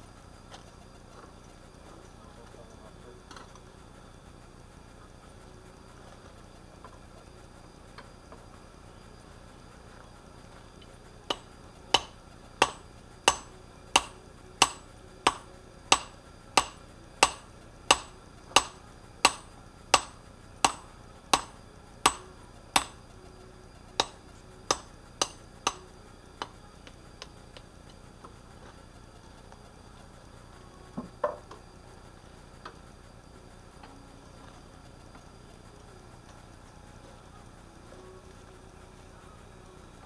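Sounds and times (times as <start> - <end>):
hammer ringing on anvil: 11.3 - 23.0, 24.0 - 25.8.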